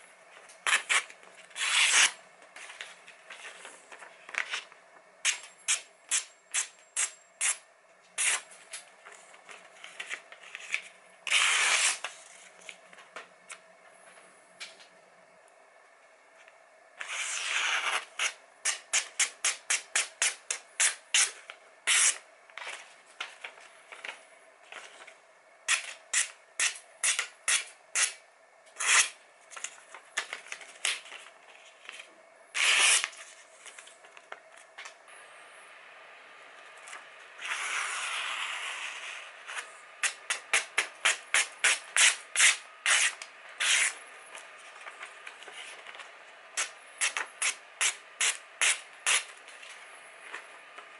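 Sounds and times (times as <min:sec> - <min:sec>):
knife slicing paper: 0:00.6 - 0:02.2, 0:09.9 - 0:12.4, 0:32.6 - 0:33.2, 0:37.4 - 0:44.0.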